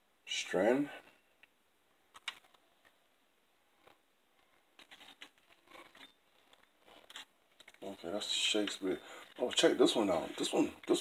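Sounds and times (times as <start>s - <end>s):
faint clicks and rustles: 1.4s - 11.0s.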